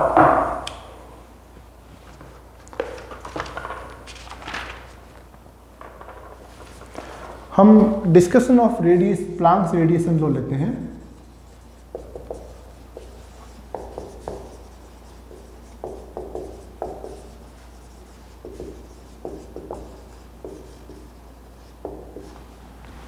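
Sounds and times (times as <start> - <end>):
marker writing on whiteboard: 10.8 - 22.6.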